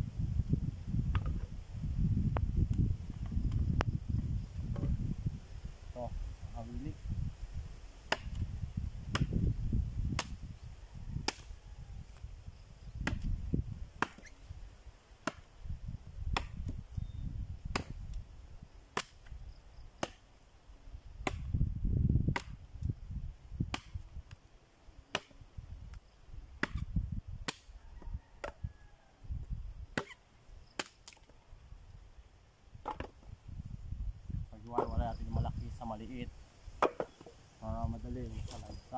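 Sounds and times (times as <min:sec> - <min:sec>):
machete chopping a branch: 0:08.0 - 0:10.5, 0:11.2 - 0:11.5, 0:13.0 - 0:13.4, 0:14.0 - 0:14.4, 0:15.2 - 0:15.6, 0:16.3 - 0:16.8, 0:17.6 - 0:18.2, 0:18.9 - 0:19.4, 0:20.0 - 0:20.3, 0:21.2 - 0:21.6, 0:22.3 - 0:22.7, 0:23.6 - 0:24.0, 0:25.1 - 0:25.4, 0:26.6 - 0:27.7, 0:30.0 - 0:31.3, 0:36.8 - 0:37.3.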